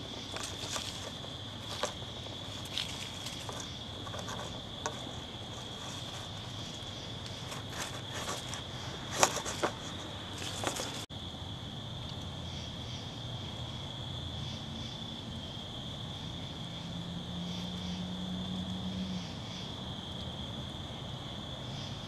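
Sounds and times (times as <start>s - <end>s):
rustling in dry leaves: 0.0s - 11.1s
high-pitched insect trill: 0.0s - 20.6s.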